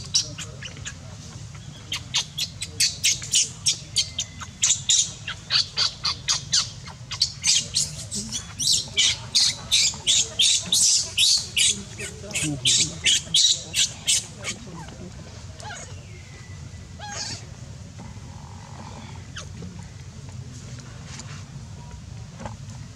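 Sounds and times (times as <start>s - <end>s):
baby monkey squealing: 1.9s - 14.9s, 17.0s - 17.4s.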